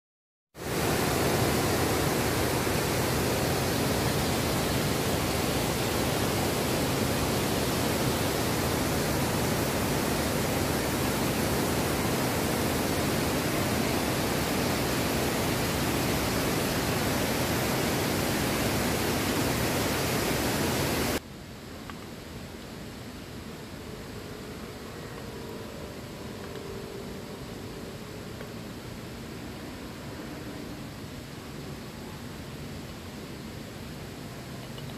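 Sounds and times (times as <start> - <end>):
waterfall rushing: 0.6 - 21.2.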